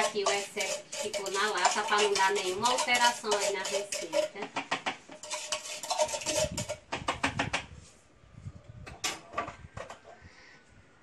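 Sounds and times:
utensil scraping tin can: 0:00.0 - 0:07.4.

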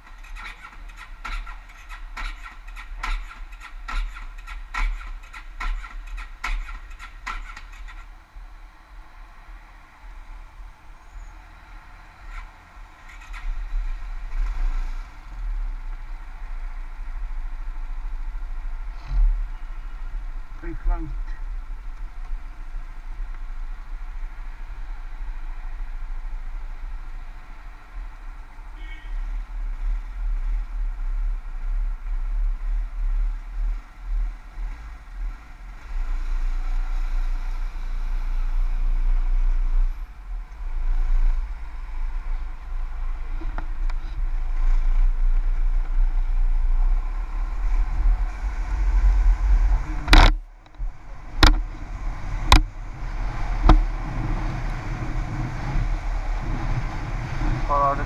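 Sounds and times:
scooter engine: 0:00.0 - 0:08.2, 0:12.2 - 0:15.4, 0:40.2 - 0:58.0
sharp knocks: 0:00.8 - 0:08.0, 0:51.4 - 0:51.6.

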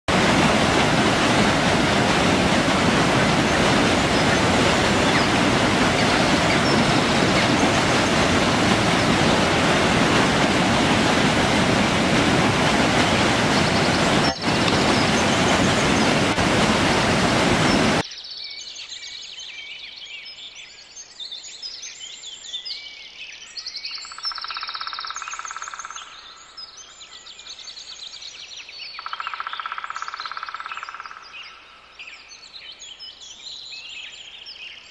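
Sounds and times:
water rushing down rocky stream: 0:00.1 - 0:18.0.

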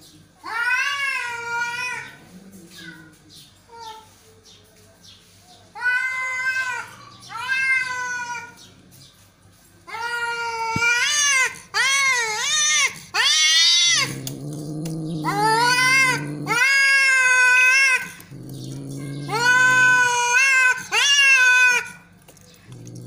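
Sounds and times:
cat growling: 0:00.6 - 0:03.2, 0:10.7 - 0:23.0
cat yowling: 0:05.8 - 0:08.6, 0:09.9 - 0:22.1.

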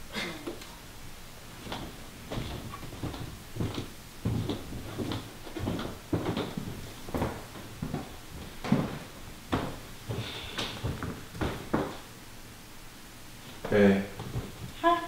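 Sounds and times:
footsteps on wooden floor: 0:01.6 - 0:12.1, 0:13.5 - 0:14.8.

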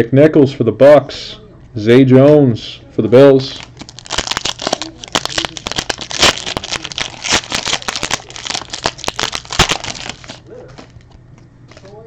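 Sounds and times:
foil wrapper tearing and crinkling: 0:03.6 - 0:11.0.

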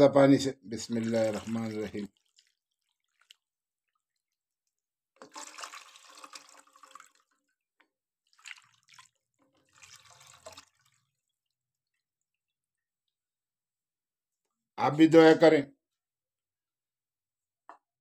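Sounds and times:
water pouring and splashing: 0:00.8 - 0:04.3, 0:05.2 - 0:07.5, 0:08.2 - 0:12.3.

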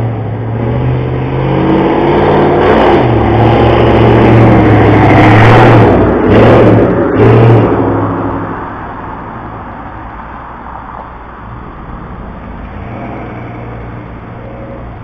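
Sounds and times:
motor vehicle passing: 0:00.0 - 0:15.0
low steady rumble: 0:05.8 - 0:15.0.

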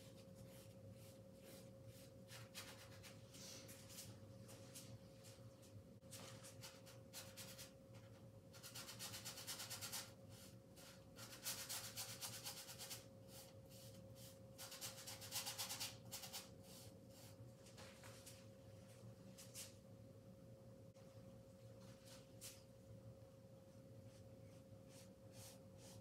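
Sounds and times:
paintbrush scrubbing canvas: 0:00.0 - 0:03.3, 0:24.0 - 0:26.0.

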